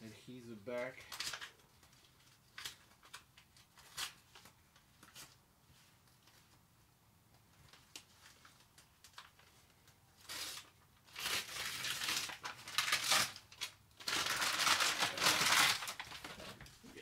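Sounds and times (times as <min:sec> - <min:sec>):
crinkling and tearing: 0:01.0 - 0:05.4, 0:07.6 - 0:16.8
paper backing peeling: 0:10.2 - 0:16.8.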